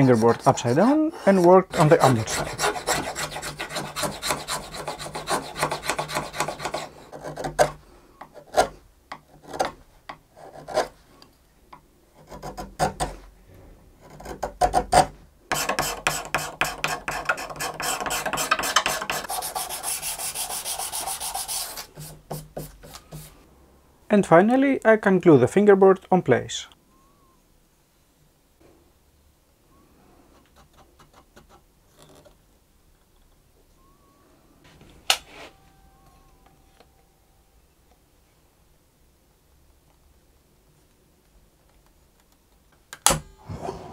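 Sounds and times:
hand tools scraping wood: 0.0s - 9.7s, 14.0s - 23.4s.

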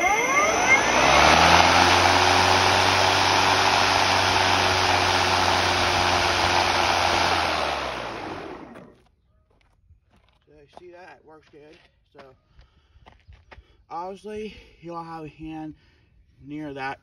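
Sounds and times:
electric lawnmower motor whirring: 0.0s - 9.0s.

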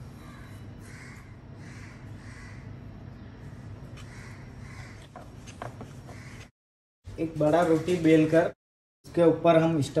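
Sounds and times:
bird cawing: 0.1s - 5.3s, 6.0s - 6.5s.

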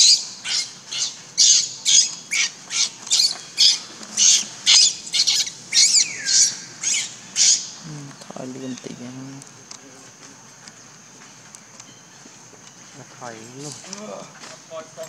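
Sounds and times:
infant monkey screaming: 0.0s - 7.8s.

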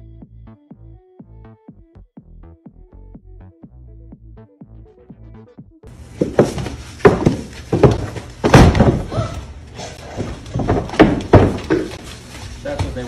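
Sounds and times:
loud irregular thumps: 6.2s - 9.2s, 10.1s - 12.0s.

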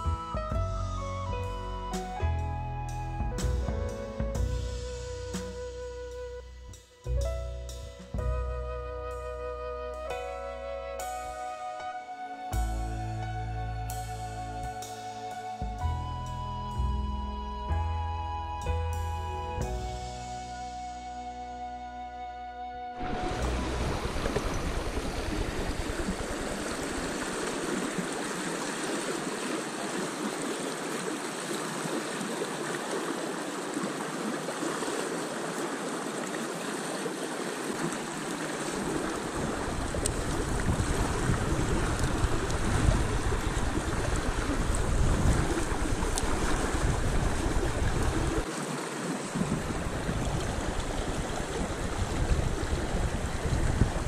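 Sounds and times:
river water flowing: 22.9s - 54.0s
wind rumble on microphone: 23.0s - 28.0s, 38.8s - 48.5s, 49.3s - 54.0s.

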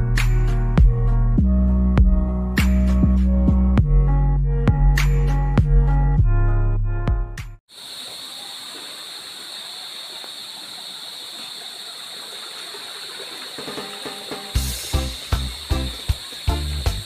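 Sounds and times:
music with a beat: 0.0s - 6.4s, 13.8s - 17.0s
water running in stone channel: 7.8s - 17.0s.

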